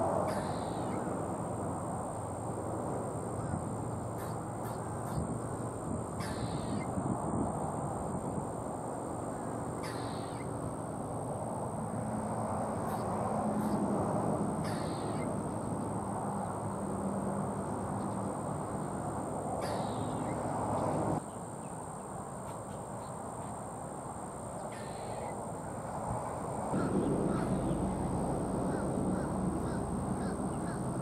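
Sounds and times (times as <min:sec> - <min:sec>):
steady background rush: 0:25.6 - 0:31.0
thin high whine: 0:26.7 - 0:31.0.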